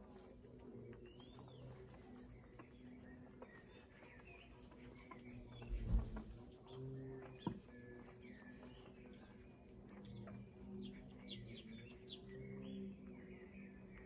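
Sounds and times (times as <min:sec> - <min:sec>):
birdsong chirps and whistles: 0:00.0 - 0:14.0.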